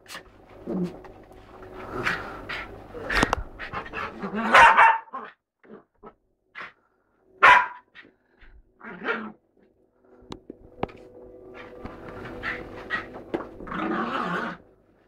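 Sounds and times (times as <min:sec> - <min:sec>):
dog barking: 0:04.4 - 0:05.4, 0:07.4 - 0:08.1.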